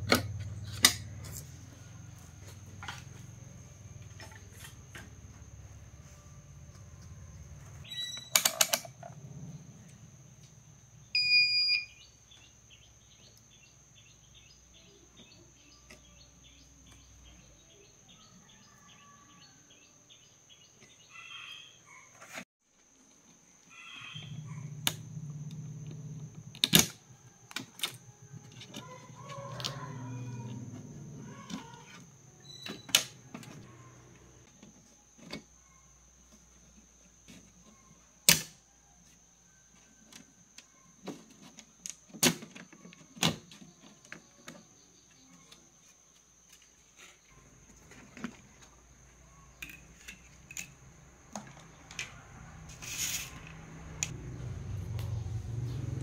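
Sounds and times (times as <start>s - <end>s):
short electronic beep: 11.2s - 12.0s
rubbing and handling noise: 52.7s - 53.5s.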